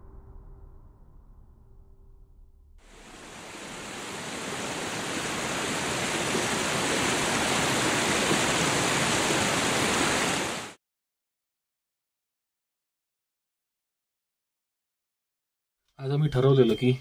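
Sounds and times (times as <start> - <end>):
water rushing over rocks: 2.9 - 10.8.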